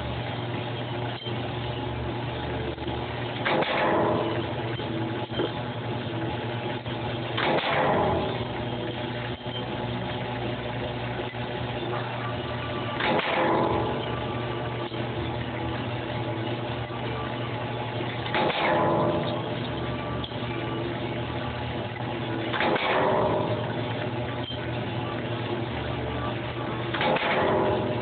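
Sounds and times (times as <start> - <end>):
stamping press stroke: 26.9 - 27.9.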